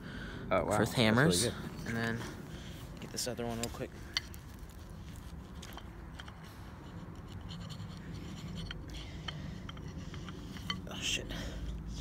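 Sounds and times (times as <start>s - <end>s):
rock scratching wooden stick: 3.0s - 10.9s.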